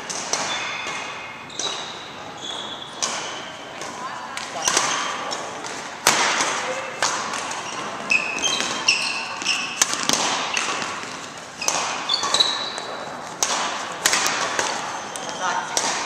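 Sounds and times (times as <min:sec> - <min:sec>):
racket striking shuttlecock: 0:00.0 - 0:02.2, 0:02.9 - 0:16.0
court shoes squeaking: 0:00.0 - 0:16.0.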